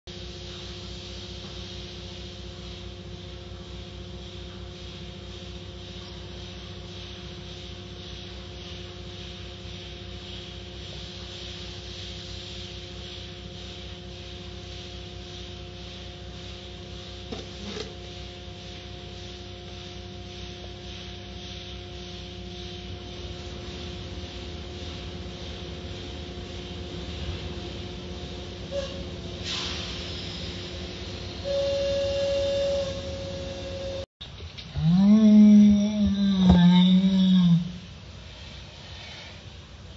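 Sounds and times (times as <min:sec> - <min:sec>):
machinery hum: 0:00.1 - 0:39.9
water spray hiss: 0:29.4 - 0:30.9.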